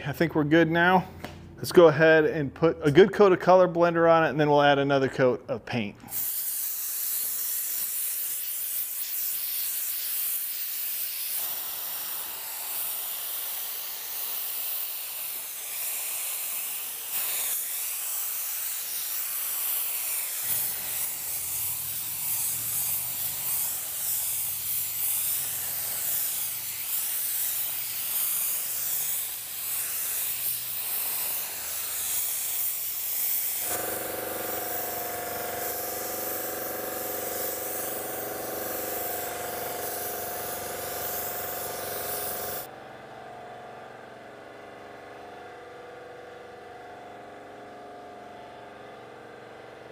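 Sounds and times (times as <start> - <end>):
paint spray gun hissing: 6.0 - 42.7.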